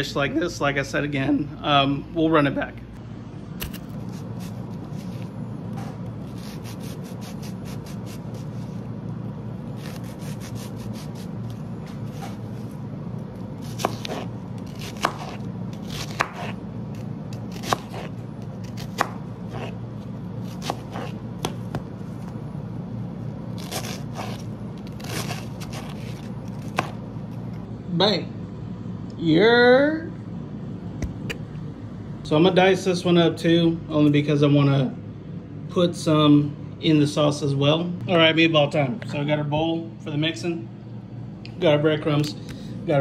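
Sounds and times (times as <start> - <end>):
heavy knife chops: 13.6 - 16.6, 17.5 - 19.8, 20.4 - 21.9, 25.0 - 27.0.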